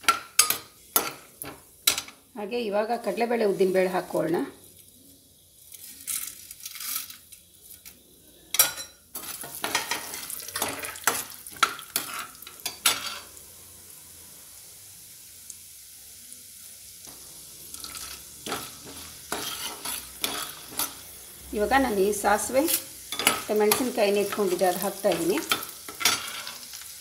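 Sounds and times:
food frying in hot oil: 0.0 - 27.0
ladle scraping and knocking pan: 17.8 - 21.0, 22.7 - 26.7.

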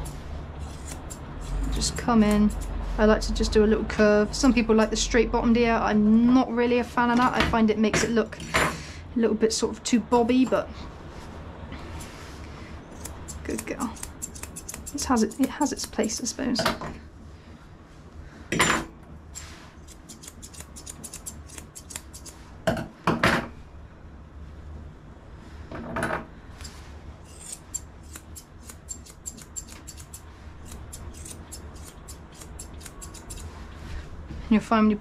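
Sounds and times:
scissors snipping hair: 0.0 - 2.7, 13.0 - 16.3, 19.9 - 22.4, 27.3 - 33.5.

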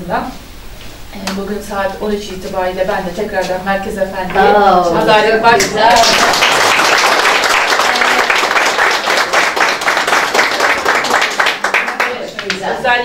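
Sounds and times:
people applauding: 5.6 - 12.8.

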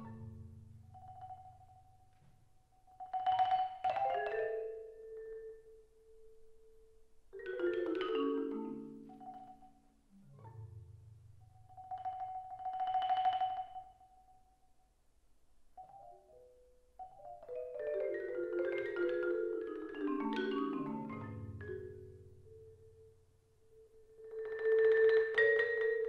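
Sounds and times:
solo marimba playing: 2.9 - 6.8, 7.4 - 14.1, 17.0 - 26.0.

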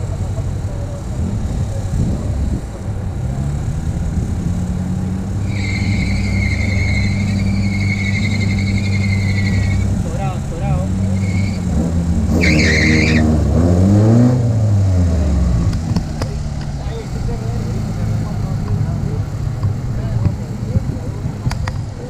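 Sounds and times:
car engine running: 0.0 - 22.0
high whistle-like tone: 5.4 - 9.8, 11.2 - 11.6.

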